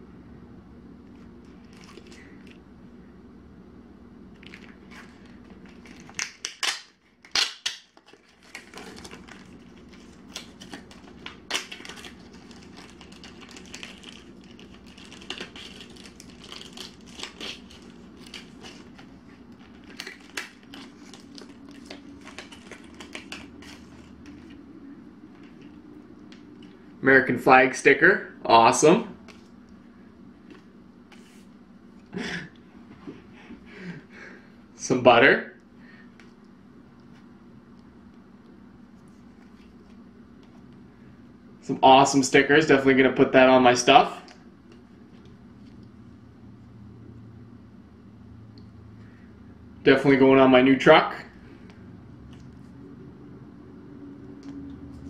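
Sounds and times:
paper and plastic crinkling: 1.2 - 2.6, 4.4 - 24.6.

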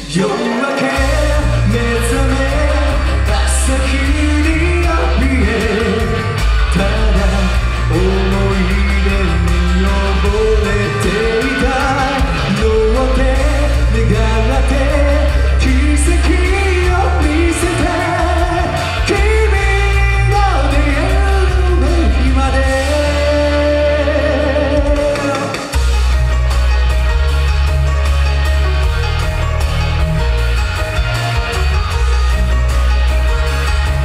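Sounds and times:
man singing into microphone: 0.0 - 25.8
amplified backing music: 0.0 - 34.0.

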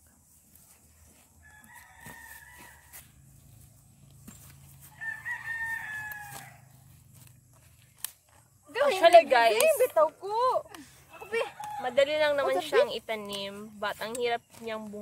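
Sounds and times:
rooster crowing: 1.4 - 3.2, 4.8 - 6.9, 11.1 - 12.2.

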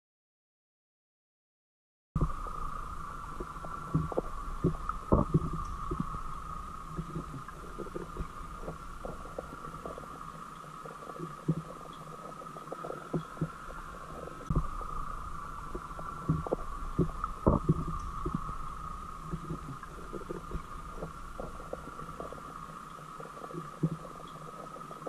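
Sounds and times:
steady high hum: 2.2 - 25.0
underwater knocks and bumps: 3.4 - 6.2, 14.4 - 14.8, 15.8 - 18.6, 19.3 - 22.4, 23.6 - 24.0.

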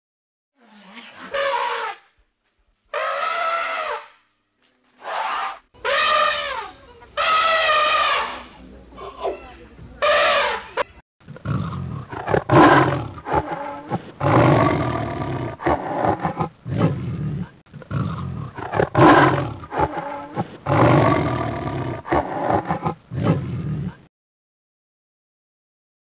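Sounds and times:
big cat roaring growls: 11.3 - 24.1.

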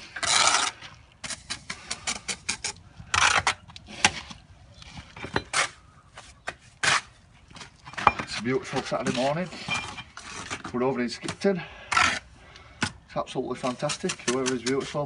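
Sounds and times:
trowel scraping wet mortar: 0.0 - 4.2, 6.8 - 7.2, 8.2 - 12.3, 13.5 - 15.0.

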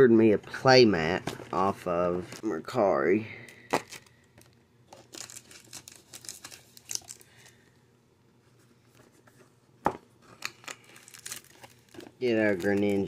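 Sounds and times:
plastic packaging crinkling: 3.5 - 7.6, 10.2 - 13.0.

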